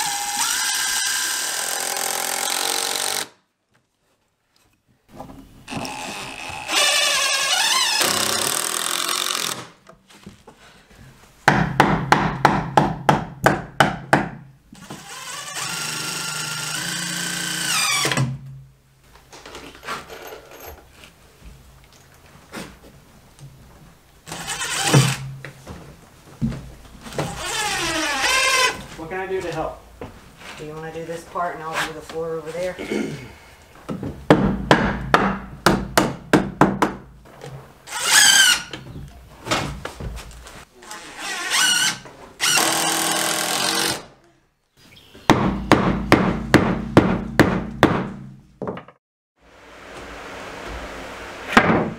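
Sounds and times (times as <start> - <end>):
impact driver driving screws: 5.8 - 9.8
sharp knocks: 33.9 - 37.1, 45.3 - 49.0.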